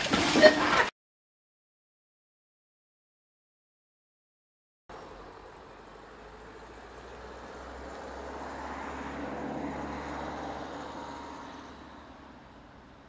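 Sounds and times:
road vehicle passing by: 0:04.9 - 0:13.0.

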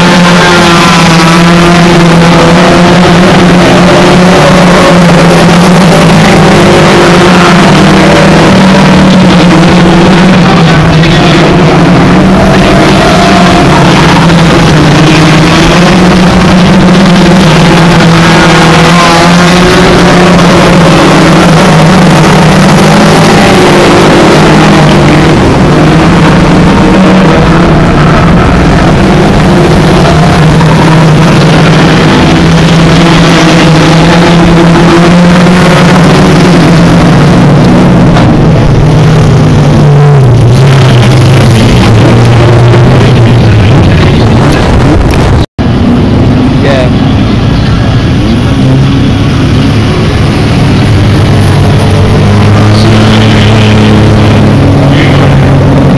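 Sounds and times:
race car engines droning: 0:00.0 - 0:55.9.

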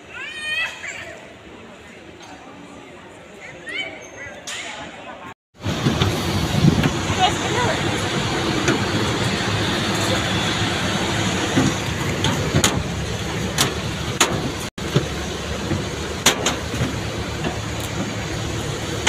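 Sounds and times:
aircraft and ground equipment noise: 0:05.6 - 0:19.0.

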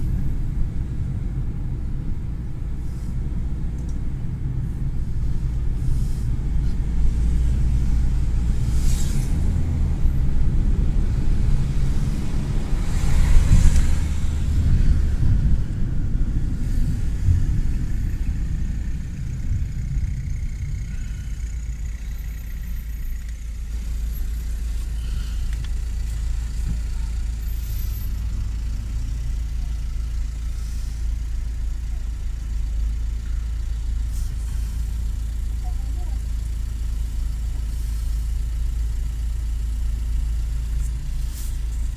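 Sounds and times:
car engine and road rumble: 0:00.0 - 0:41.9.

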